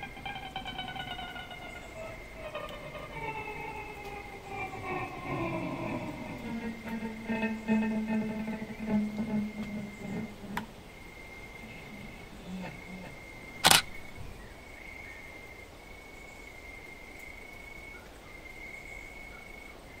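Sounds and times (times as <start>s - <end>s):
faint high tone: 0.0s - 10.8s, 11.5s - 13.6s
closing music: 0.0s - 14.4s
camera shutter click: 13.6s - 13.9s.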